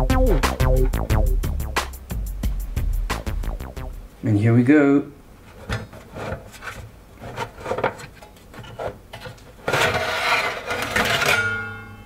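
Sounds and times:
metal scraping on metal: 5.5 - 11.6
metal cover scrapes and knocks: 5.5 - 11.7.

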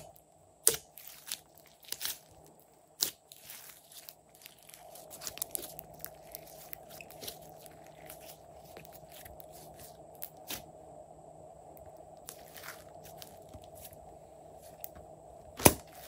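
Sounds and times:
faint steady hum: 0.0 - 16.0
sticky slime clicks and crackles: 0.6 - 9.5.

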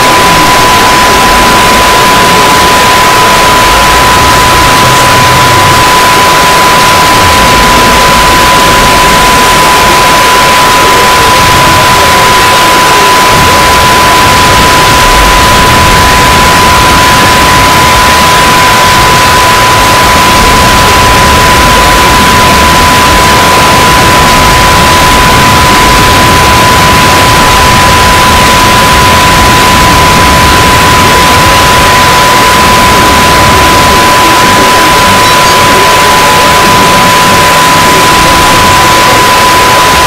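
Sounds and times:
loud static-like din: 0.0 - 40.0
steady high beep tone: 0.0 - 40.0.

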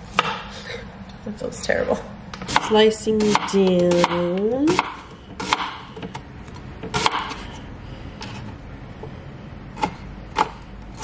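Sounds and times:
knife slicing tomato: 2.4 - 5.8.

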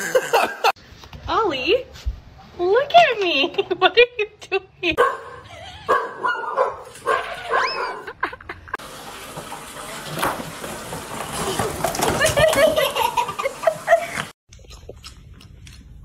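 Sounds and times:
box and toy blocks clattering: 10.4 - 13.0.

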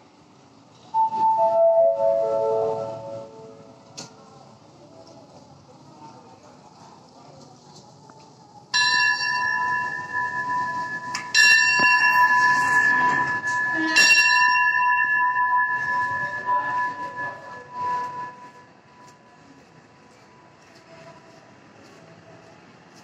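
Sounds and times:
platform bell ringing: 8.8 - 19.2.

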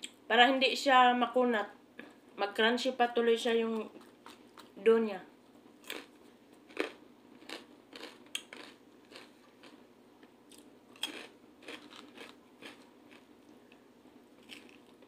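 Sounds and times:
chewing crunchy food: 3.9 - 4.8, 5.8 - 9.8, 10.5 - 13.8, 14.4 - 15.0.

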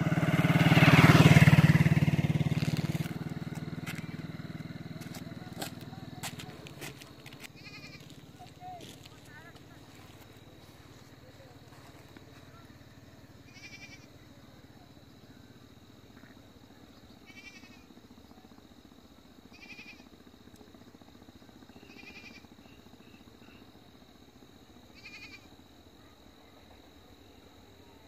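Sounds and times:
quavering high-pitched animal calls: 7.5 - 8.9, 13.4 - 14.1, 17.2 - 17.9, 19.5 - 20.1, 21.8 - 22.8, 24.9 - 25.5.

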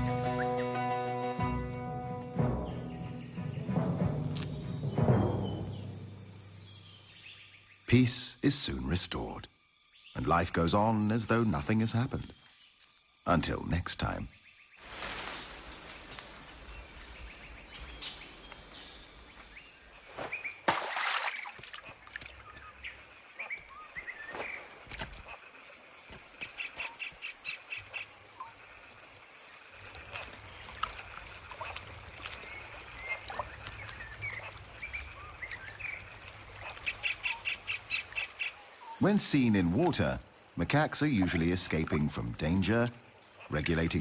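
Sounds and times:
birds chirping and whistling: 2.4 - 7.9, 16.7 - 19.8.

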